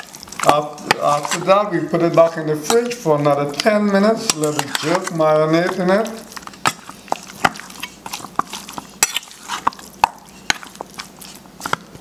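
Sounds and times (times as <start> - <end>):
spoon clinking and scraping bowl: 4.2 - 11.8.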